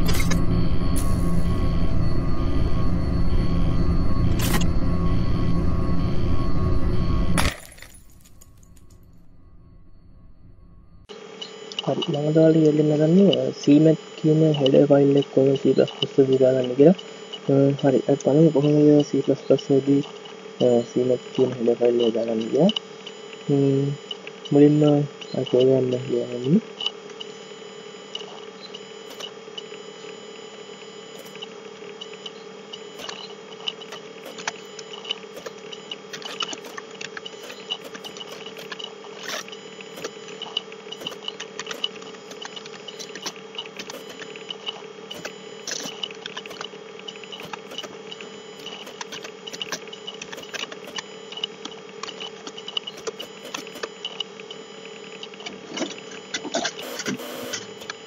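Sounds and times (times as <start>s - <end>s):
steady background hum: 0.0s - 58.0s.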